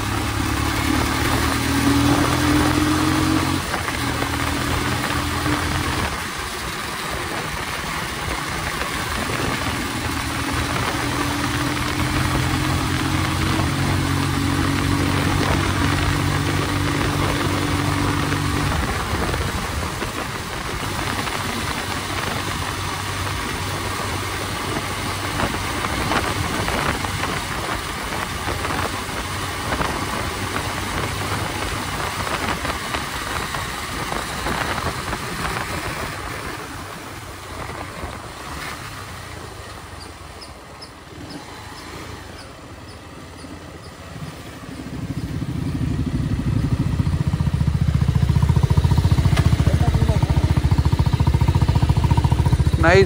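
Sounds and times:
motorcycle engine riding: 0.0 - 53.0
wind rush: 7.1 - 39.4
motorcycle idling: 14.5 - 53.0.

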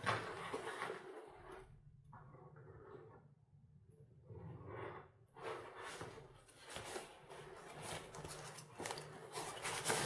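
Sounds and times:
nylon bag rustling: 6.6 - 10.0
zipper clicks and scrapes: 8.8 - 10.0.

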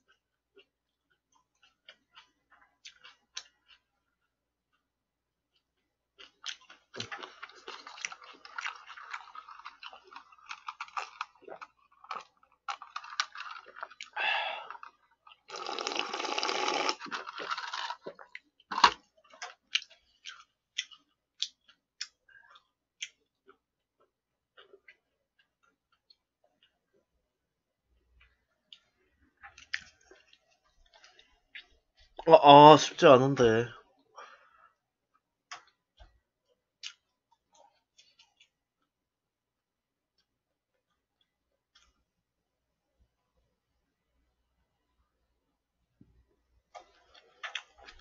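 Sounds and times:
wet chewing: 0.0 - 27.2, 28.1 - 32.2, 46.8 - 48.0
drinking from a cup: 14.0 - 17.4.

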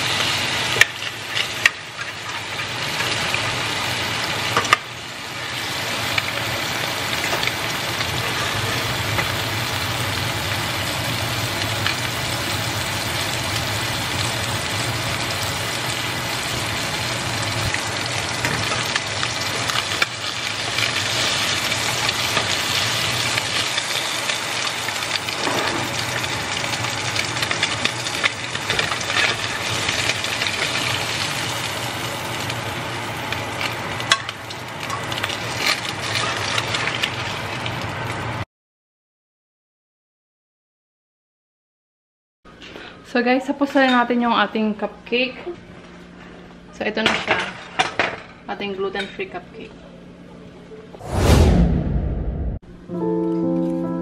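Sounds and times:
fish sizzling in a pan: 0.0 - 38.4.

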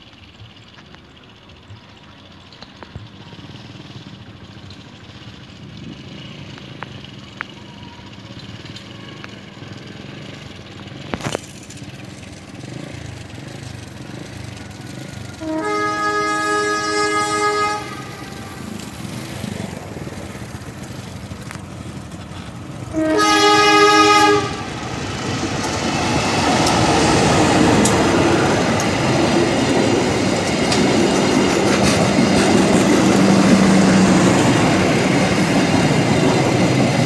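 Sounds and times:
diesel train rumbling: 0.0 - 37.0
train horn blast: 15.3 - 19.0, 22.9 - 25.0.

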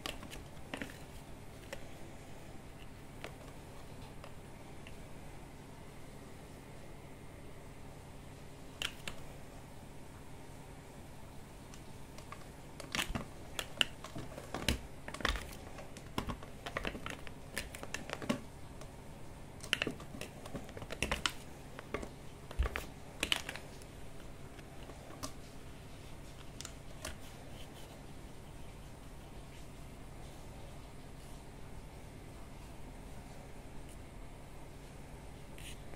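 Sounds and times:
cat paws tapping strip and fabric: 11.7 - 19.0, 19.6 - 28.1.

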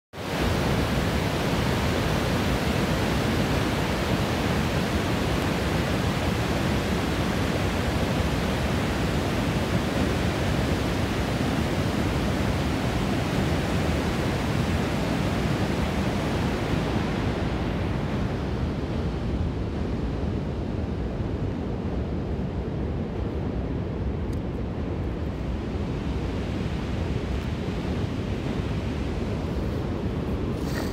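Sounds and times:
water rushing down dam spillway: 0.2 - 20.1.

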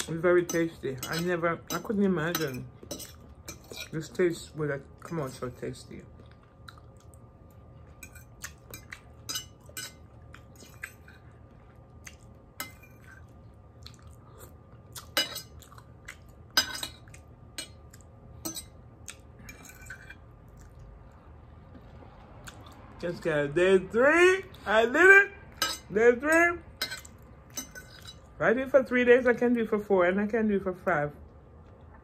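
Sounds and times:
low steady hum: 0.0 - 32.0
cutlery clinking on a plate: 0.4 - 4.0, 15.1 - 15.5, 16.6 - 17.8, 18.4 - 18.7, 25.6 - 25.9, 26.8 - 28.2.

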